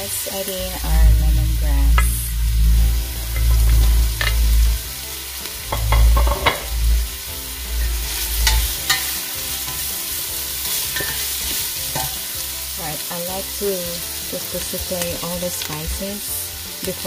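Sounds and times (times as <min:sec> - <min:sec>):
frying sizzle: 0:00.0 - 0:17.0
low rumble: 0:00.6 - 0:10.1.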